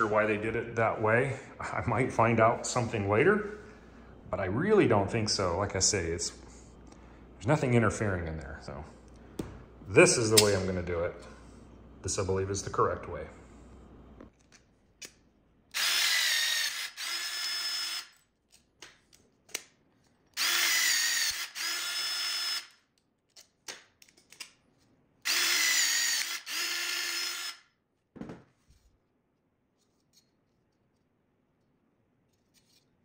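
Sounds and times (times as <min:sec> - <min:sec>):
rivet tool motor whirring: 0:15.7 - 0:18.2, 0:20.4 - 0:22.8, 0:25.2 - 0:27.7.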